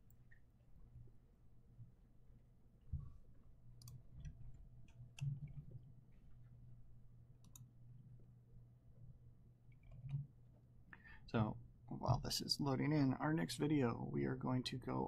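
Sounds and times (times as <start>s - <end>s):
low steady hum: 0.0s - 15.0s
faint clicks: 3.8s - 5.6s, 7.4s - 7.7s.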